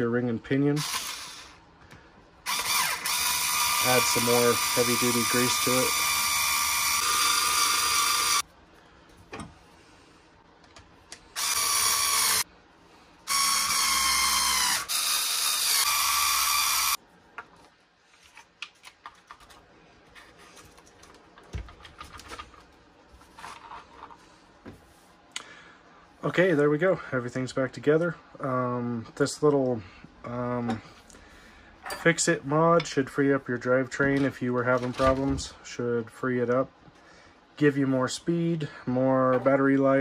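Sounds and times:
electric screwdriver whirring: 0.8 - 1.5, 2.5 - 8.4, 11.4 - 12.4, 13.3 - 17.0.

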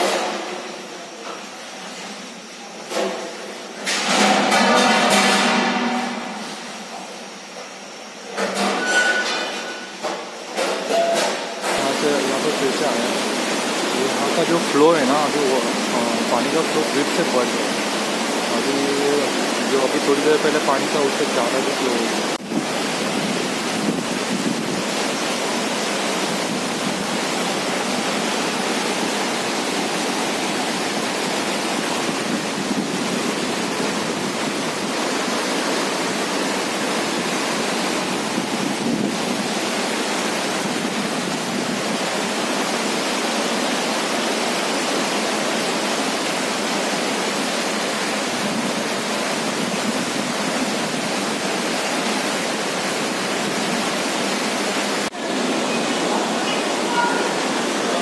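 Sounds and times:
river rushing in rapids: 11.8 - 58.0.

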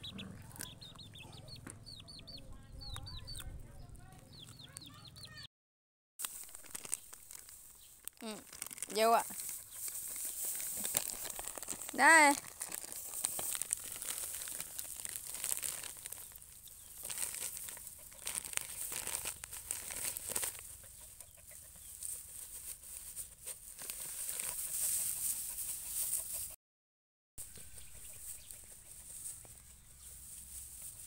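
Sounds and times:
chickens clucking: 0.0 - 5.4, 20.6 - 23.6, 24.5 - 26.6, 27.4 - 30.1.

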